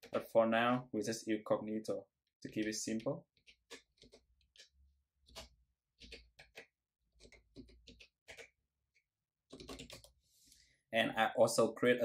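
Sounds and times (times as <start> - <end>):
keyboard keystrokes: 9.5 - 10.1.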